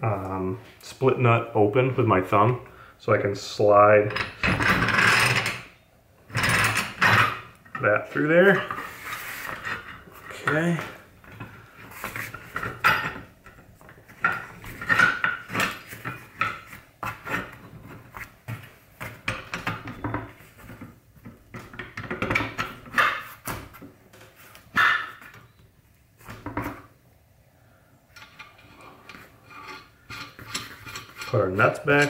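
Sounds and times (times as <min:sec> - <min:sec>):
metal vise parts clanking and scraping: 0:04.0 - 0:05.7, 0:06.3 - 0:18.1, 0:21.5 - 0:23.4, 0:28.2 - 0:32.0.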